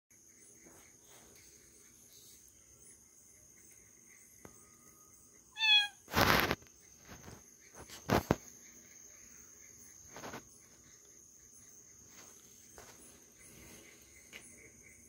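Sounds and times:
crickets chirping: 0.1s - 15.0s
kitten meowing: 5.6s - 6.1s.

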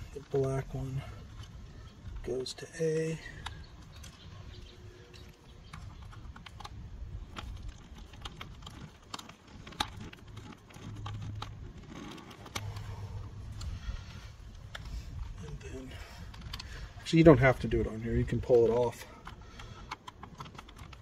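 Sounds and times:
screwdriver and wire clicking on plastic: 3.3s - 13.8s, 18.3s - 21.0s
low rumble: 9.6s - 18.4s.

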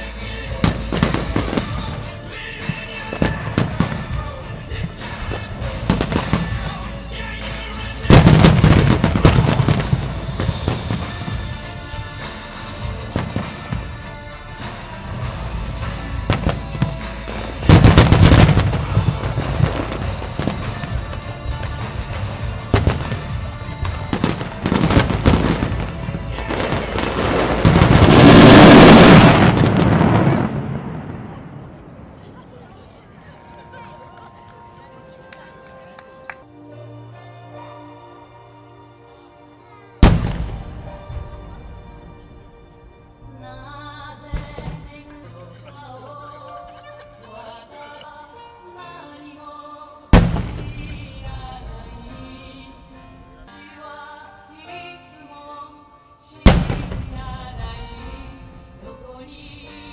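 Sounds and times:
music: 0.0s - 32.1s, 32.9s - 59.9s
fireworks bursting and crackling: 0.0s - 32.5s, 40.0s - 42.5s, 56.5s - 58.4s.

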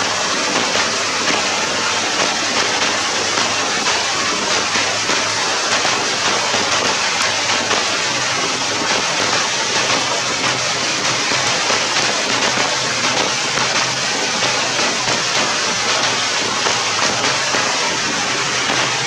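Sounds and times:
rain falling on grass: 0.2s - 19.0s.

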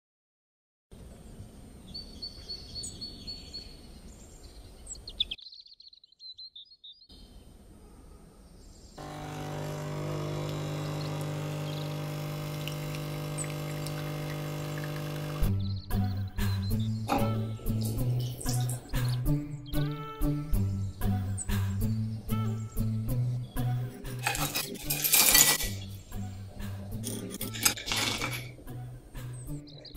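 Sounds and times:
birds chirping: 1.8s - 23.7s
espresso machine pump humming: 9.0s - 15.5s.

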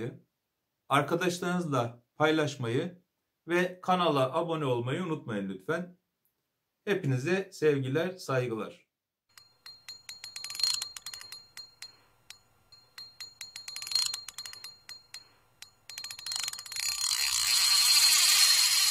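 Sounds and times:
rapid ratcheting clicks: 9.3s - 18.9s.

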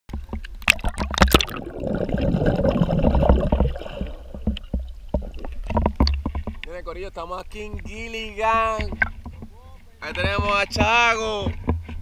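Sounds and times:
water splashing against camera: 0.1s - 12.0s
water thumping against housing: 0.1s - 12.0s
muffled underwater bubbling: 0.6s - 6.2s.

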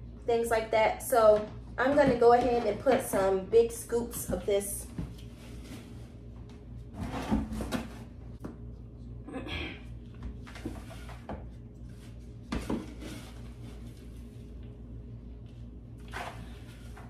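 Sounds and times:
potting mix rustling and scraping: 1.2s - 8.1s, 10.5s - 14.6s.

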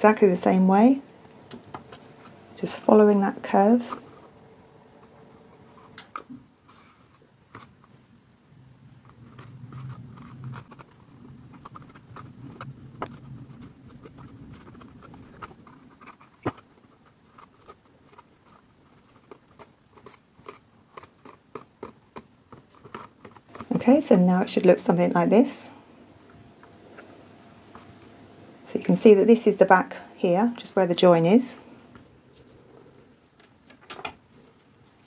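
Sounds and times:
fingertips tapping and rubbing cardstock: 9.1s - 24.0s.

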